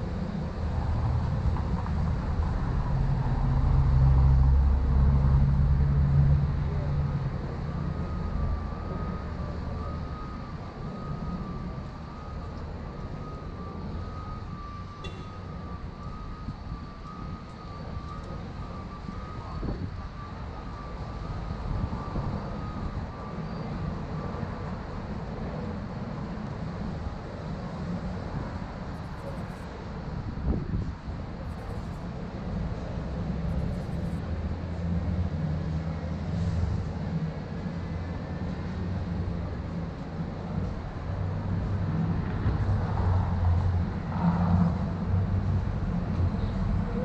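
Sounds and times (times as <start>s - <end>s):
traffic rumble: 0.0s - 47.0s
faint wavering high tone: 7.9s - 19.9s, 33.5s - 34.2s.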